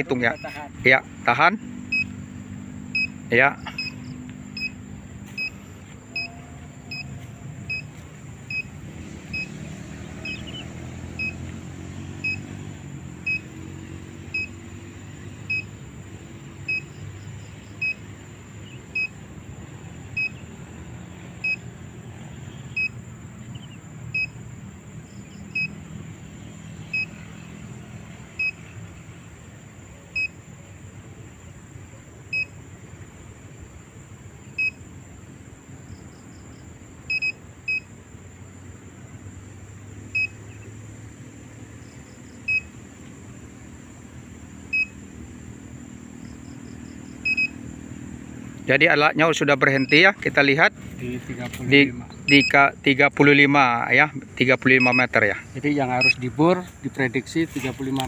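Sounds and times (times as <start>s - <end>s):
short high electronic beeps: 54.8s - 55.1s.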